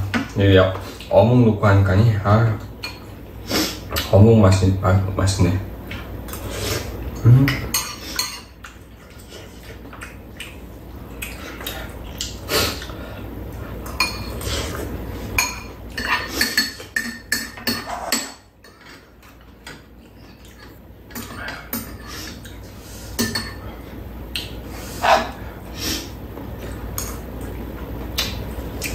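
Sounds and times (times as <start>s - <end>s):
utensils clinking on bowls: 7.5s - 9.2s, 13.9s - 14.5s, 15.4s - 22.4s, 23.2s - 23.7s.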